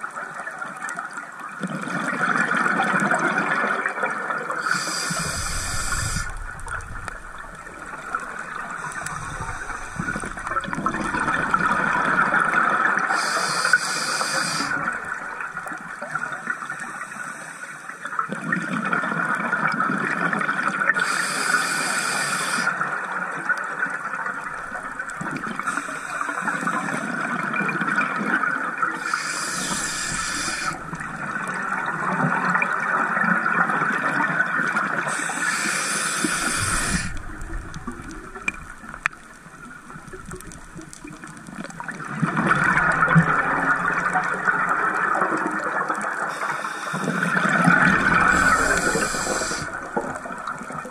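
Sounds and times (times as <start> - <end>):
steady underwater noise: 0.0 - 50.9
exhaled bubbles rushing: 1.6 - 13.1, 36.2 - 46.3, 47.2 - 50.9
regulator hissing inhales: 4.6 - 11.3, 13.1 - 14.9, 16.9 - 18.0, 21.0 - 22.8, 25.6 - 27.1, 29.0 - 31.2, 35.1 - 39.0, 46.3 - 50.5.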